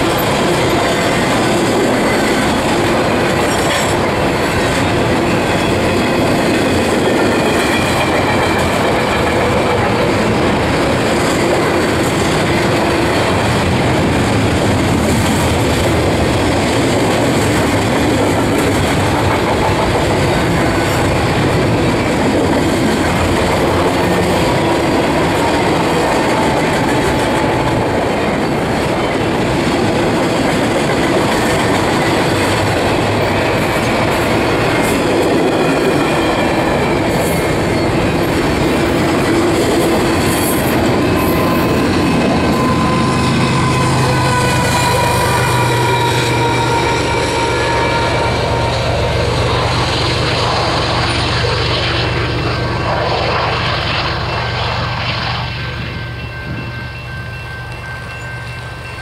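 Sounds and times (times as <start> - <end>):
train wheels rumbling on rail: 0.0 - 59.0
wheel squeal: 40.3 - 48.4.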